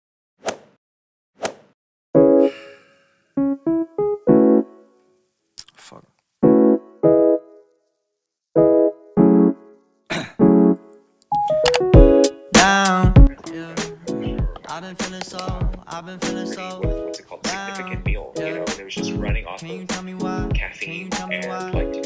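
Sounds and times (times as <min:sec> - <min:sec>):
music with voice: 0:11.5 - 0:22.0.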